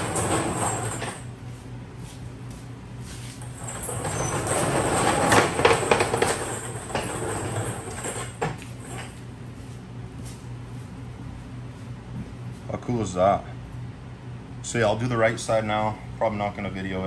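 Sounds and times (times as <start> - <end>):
casters rattling over concrete: 0.0 - 1.4, 3.4 - 9.2.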